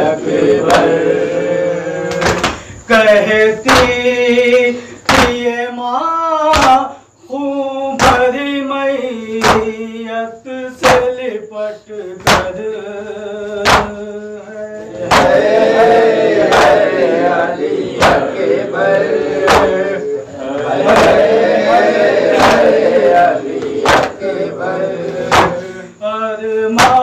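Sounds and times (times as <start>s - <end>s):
man singing a lament: 0.0s - 27.0s
many voices chanting: 0.0s - 27.0s
chest-beating strikes: 25.2s - 25.6s.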